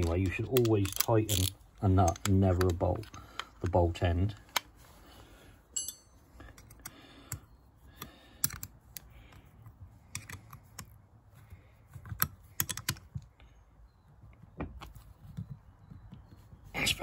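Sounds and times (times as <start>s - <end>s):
ratchet clicks and metal taps: 5.8s - 9.1s.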